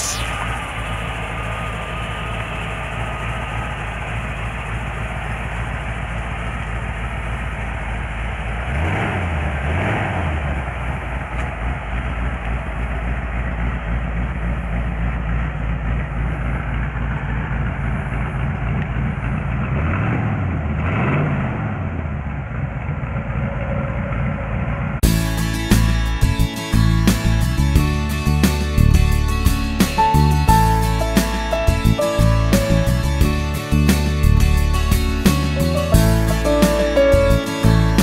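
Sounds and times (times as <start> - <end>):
engine revving with throttle blips: 0.0 - 25.8
car engine idling: 0.0 - 38.0.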